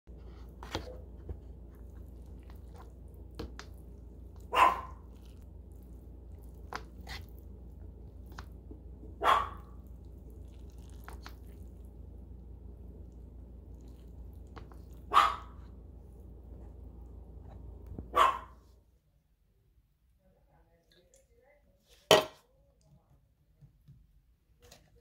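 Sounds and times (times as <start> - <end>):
fork stirring noodles: 0.1 - 12.2, 12.8 - 16.8.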